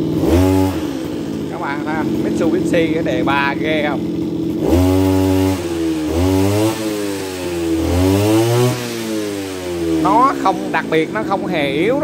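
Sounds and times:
brush cutter engine revving: 0:00.0 - 0:12.0.

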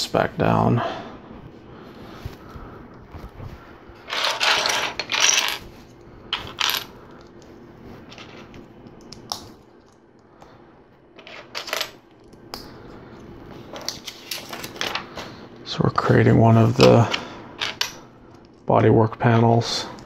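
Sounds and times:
plastic pieces clattering: 0:04.1 - 0:05.6.

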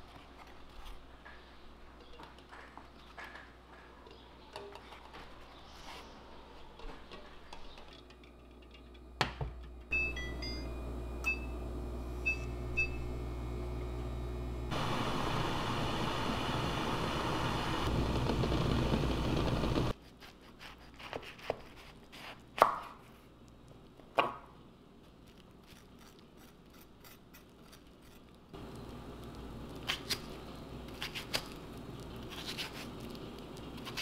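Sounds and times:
cooktop humming: 0:00.0 - 0:34.0
cooktop beeps: 0:09.9 - 0:16.4.

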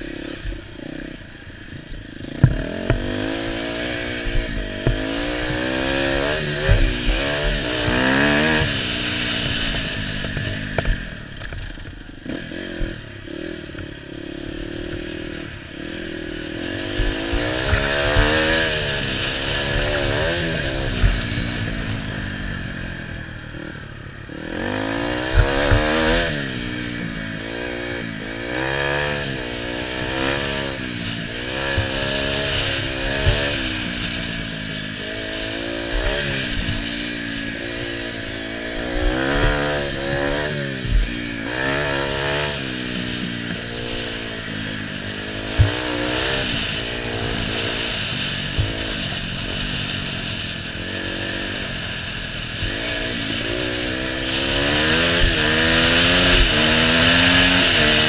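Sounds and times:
dirt bike engine revving: 0:00.0 - 0:58.0
bike knocking over bumps: 0:02.4 - 0:03.5, 0:04.7 - 0:08.8.

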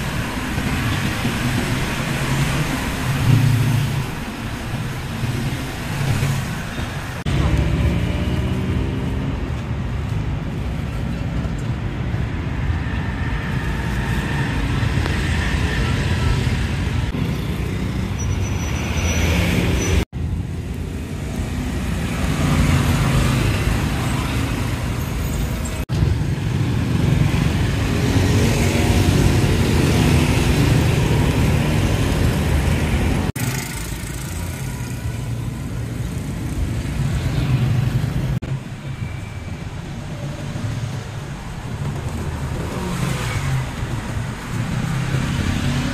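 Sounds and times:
cars and motorbikes passing: 0:00.0 - 0:45.9.

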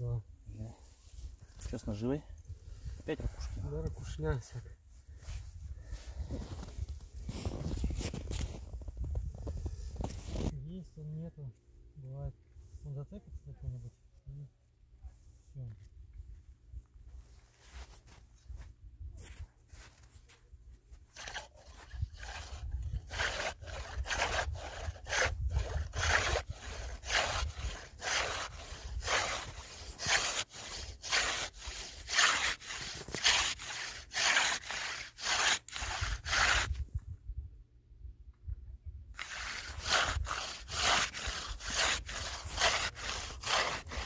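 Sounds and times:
hand saw cutting ice: 0:21.1 - 0:36.8, 0:39.2 - 0:44.0.

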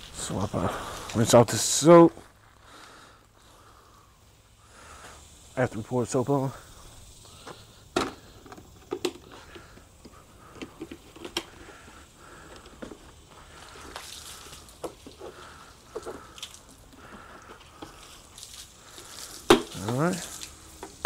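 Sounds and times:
wet squishy scrubbing: 0:09.3 - 0:21.0.

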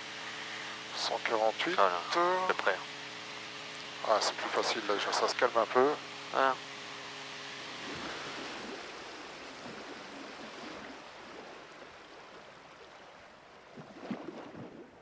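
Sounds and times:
cockpit noise hiss: 0:00.0 - 0:11.6.

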